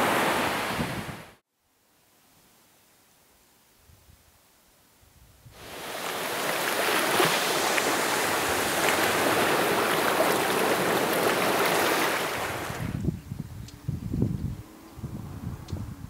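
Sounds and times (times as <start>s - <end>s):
waves washing over rocks: 5.6s - 13.0s.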